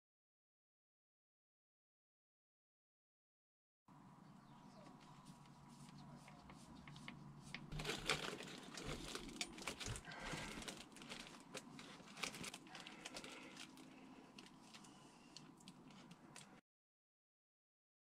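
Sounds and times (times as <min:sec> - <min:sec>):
rustling and small clicks: 0:04.8 - 0:16.6.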